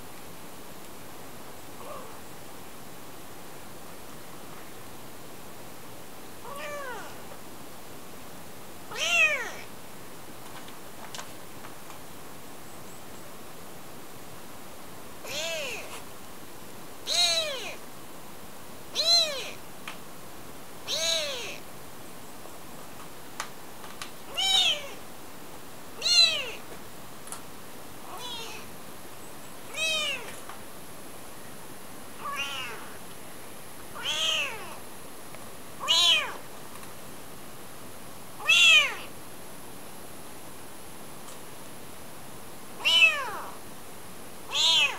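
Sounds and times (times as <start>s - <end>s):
kitten mewing: 1.8s - 2.2s, 6.4s - 7.2s, 8.9s - 9.6s, 15.2s - 16.0s, 17.1s - 17.8s, 19.0s - 19.6s, 20.9s - 21.6s, 24.3s - 25.0s, 26.0s - 26.6s, 28.1s - 28.6s, 29.7s - 30.3s, 32.2s - 33.0s, 34.0s - 34.8s, 35.8s - 36.4s, 38.4s - 39.1s, 42.8s - 43.5s, 44.5s - 44.9s.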